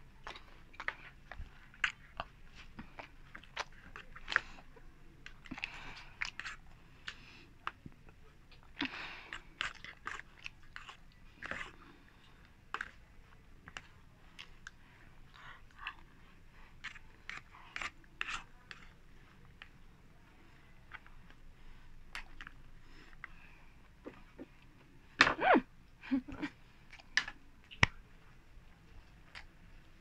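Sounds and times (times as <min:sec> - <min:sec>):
chewing and crunching: 0:00.0 - 0:25.0.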